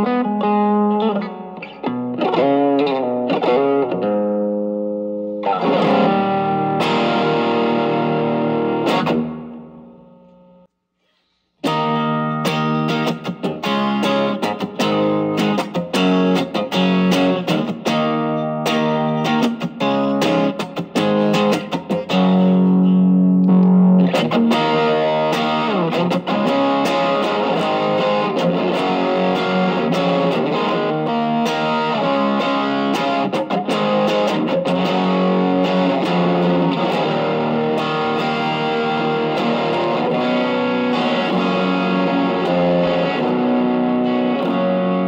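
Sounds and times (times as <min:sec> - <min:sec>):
overdriven electric guitar: 0:00.0 - 0:10.7, 0:11.6 - 0:45.0.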